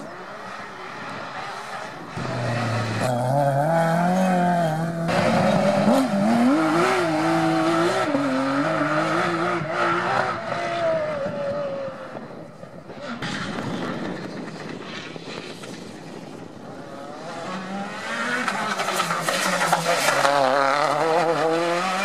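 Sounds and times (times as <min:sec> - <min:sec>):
rally car engine accelerating: 0:00.0 - 0:12.2, 0:16.7 - 0:22.0.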